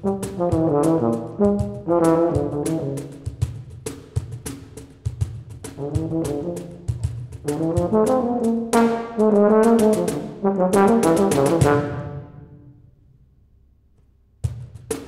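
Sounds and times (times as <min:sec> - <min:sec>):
euphonium melody: 0:05.8 - 0:13.0.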